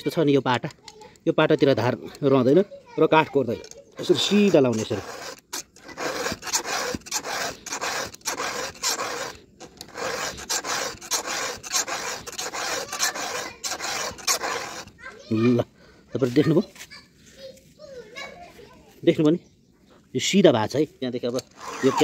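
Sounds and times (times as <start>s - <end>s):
file rasping on saw chain: 4.0s - 15.0s, 21.4s - 22.0s.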